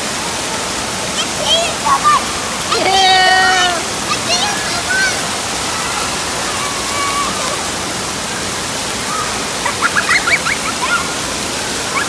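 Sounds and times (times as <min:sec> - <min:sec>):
water jets spraying on tiles: 0:00.0 - 0:12.0
faint children's voices: 0:01.0 - 0:12.0
child squealing and laughing: 0:06.5 - 0:07.6, 0:09.1 - 0:11.2.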